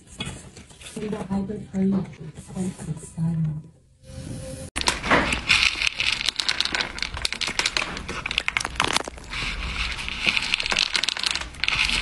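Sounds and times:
cat crunching dry kibble: 0:04.8 - 0:12.0.

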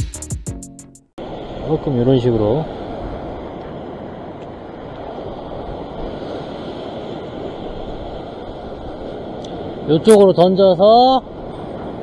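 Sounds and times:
ocean surf washing over rocks: 0:01.2 - 0:12.0.

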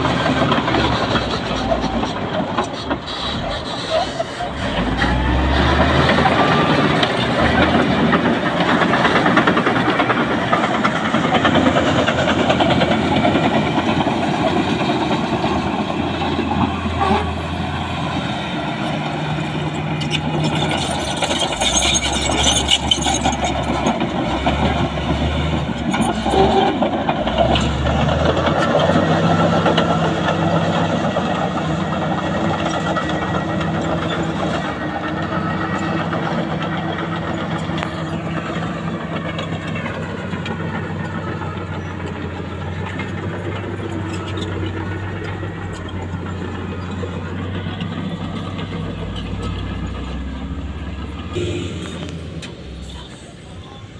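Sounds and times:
bulldozer diesel engine running: 0:00.0 - 0:53.9
another machine running: 0:51.2 - 0:53.9.

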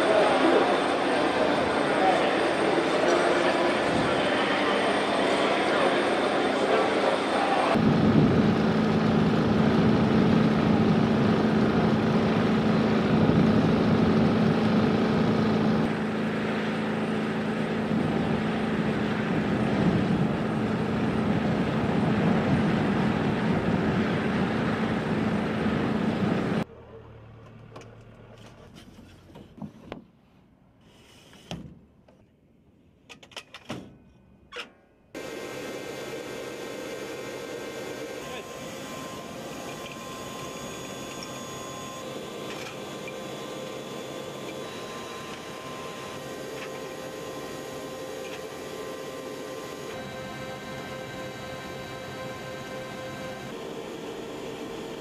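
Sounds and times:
machinery humming: 0:35.2 - 0:55.0.

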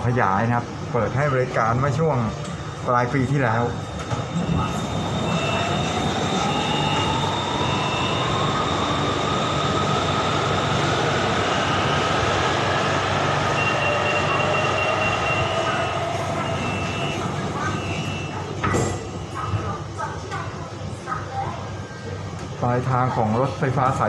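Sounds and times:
electric train rumbling: 0:00.0 - 0:22.5
train motor whine: 0:03.8 - 0:19.4.

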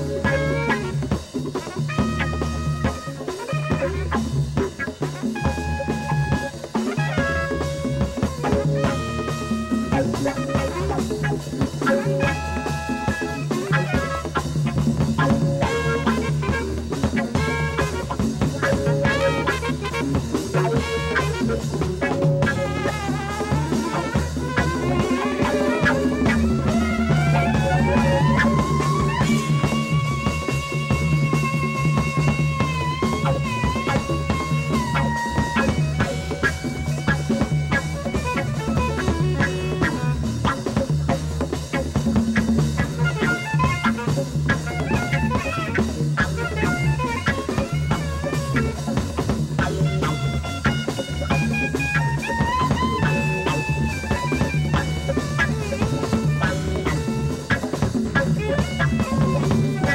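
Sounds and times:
jazz-rock band playing: 0:00.0 - 0:59.9
soprano saxophone line: 0:00.0 - 0:59.9.

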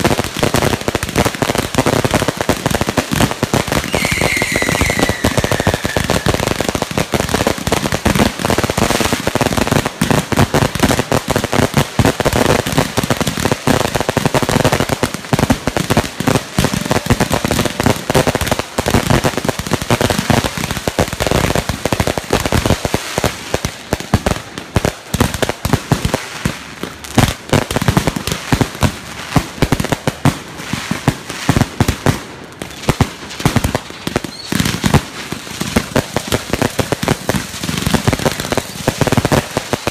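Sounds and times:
fireworks crackling and popping: 0:00.0 - 0:39.9
firework whistle: 0:03.8 - 0:06.6, 0:34.3 - 0:34.6.

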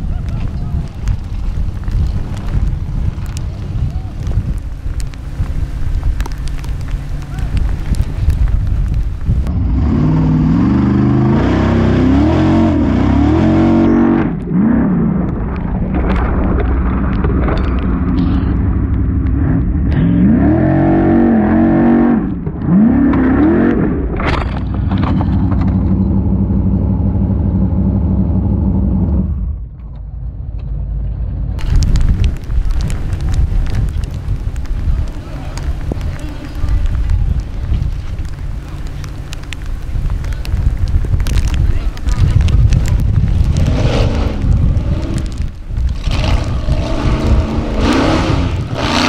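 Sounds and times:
buggy engine revving hard: 0:09.5 - 0:15.1, 0:19.4 - 0:24.2, 0:43.4 - 0:49.0.

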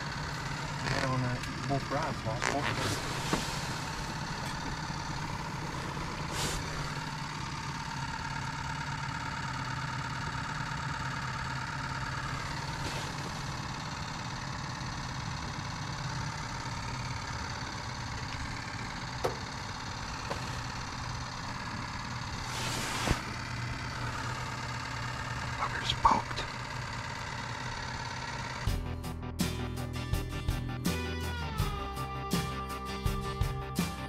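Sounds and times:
low machine hum: 0:00.0 - 0:32.1
rustles: 0:02.4 - 0:04.8, 0:05.9 - 0:07.0, 0:12.4 - 0:13.6, 0:22.4 - 0:24.4.

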